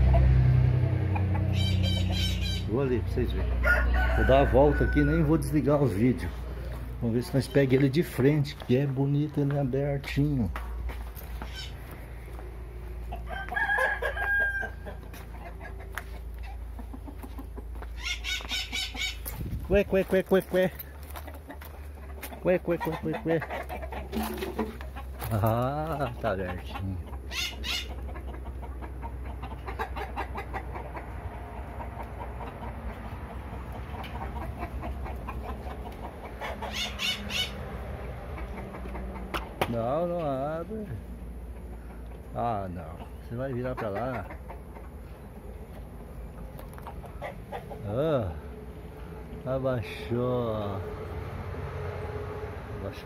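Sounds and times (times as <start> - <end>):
chickens clucking: 0.0 - 53.0
rooster crowing: 3.6 - 5.6, 13.2 - 15.1
short clucks: 21.2 - 25.4, 26.0 - 37.5, 38.3 - 40.4, 41.6 - 45.0.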